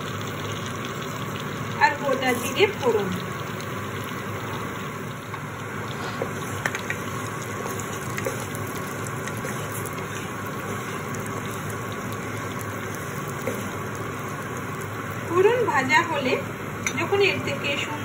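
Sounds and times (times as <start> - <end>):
spices sizzling in oil: 0.0 - 18.0
spatula tapping and scraping: 6.1 - 14.0.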